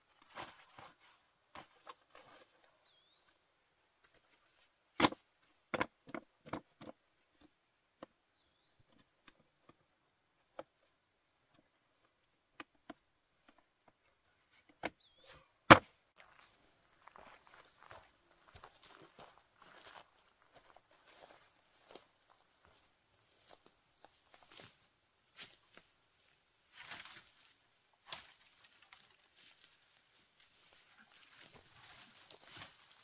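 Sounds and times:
insects chirping: 0.0 - 33.0.

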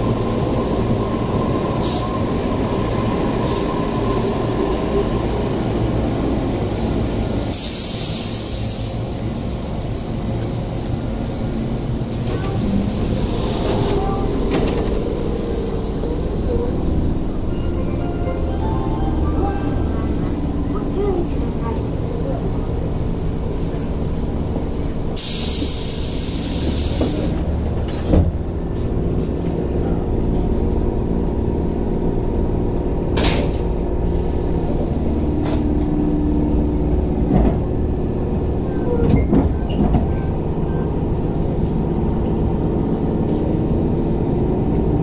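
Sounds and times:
train hiss: 0.0 - 28.0, 33.7 - 37.1
electric train rumble: 0.0 - 45.0.

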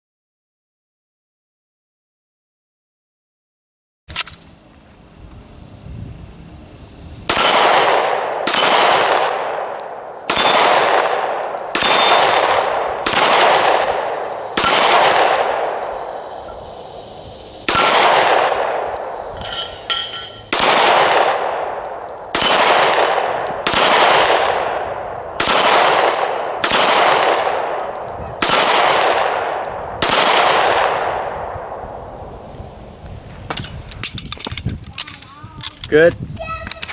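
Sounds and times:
pistol shots echoing: 7.3 - 17.0, 17.6 - 32.2.

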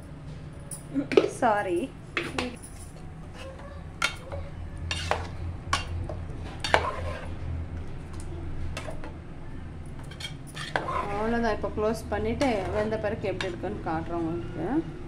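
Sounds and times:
steady low hum: 0.0 - 15.0
ladle stirring thick curry: 3.3 - 9.0, 10.0 - 11.5, 12.3 - 13.8.

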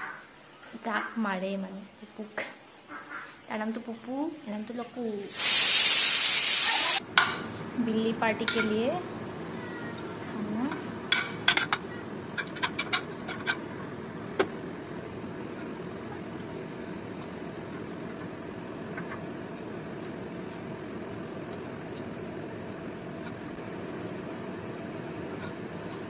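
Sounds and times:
low background hum: 0.0 - 5.4, 6.5 - 26.0
metal spoon tapping frying pan: 8.4 - 8.8.

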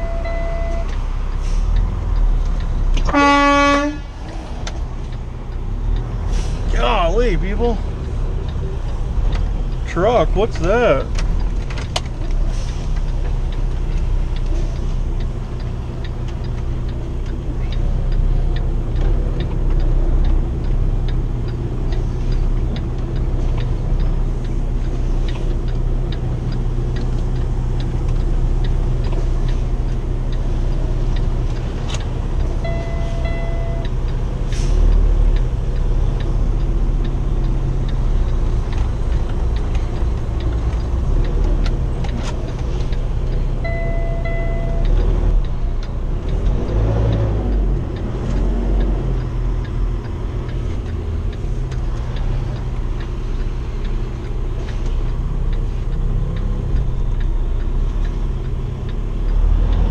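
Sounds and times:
short beeps: 0.0 - 0.9, 32.6 - 34.0, 43.6 - 45.0
faint regular ticking: 0.2 - 59.9
truck diesel engine running: 0.9 - 59.9.

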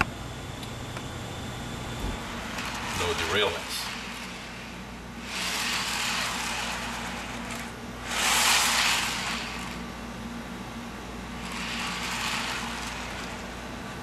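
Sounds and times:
model train wheels rumbling on rails: 2.4 - 9.8, 11.4 - 13.6.

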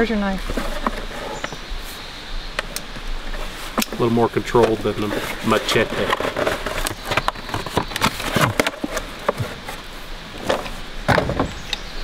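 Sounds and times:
cardboard packaging crinkling: 4.7 - 9.9.

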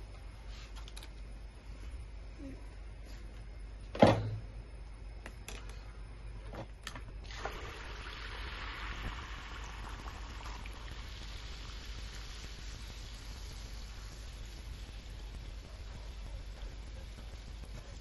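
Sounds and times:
batter sizzling in hot oil: 7.2 - 18.0.

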